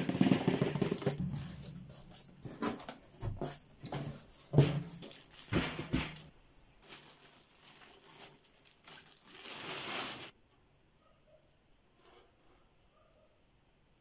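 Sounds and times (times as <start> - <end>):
cardboard rustling: 0.0 - 10.3
plastic bag rustling: 3.8 - 10.4.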